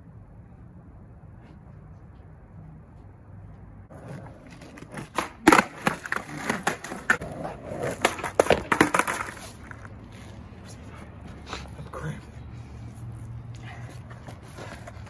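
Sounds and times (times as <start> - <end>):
skateboard clacks on concrete: 3.9 - 10.8
skateboard wheels rolling: 3.9 - 11.5, 13.8 - 15.0.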